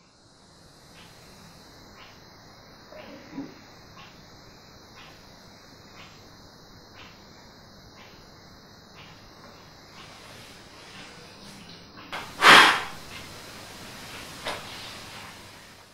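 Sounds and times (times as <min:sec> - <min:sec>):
faint hiss: 0:00.0 - 0:15.9
faint ticking: 0:00.1 - 0:10.4
blowing out candle: 0:12.2 - 0:13.0
short puff of breath: 0:12.2 - 0:13.0.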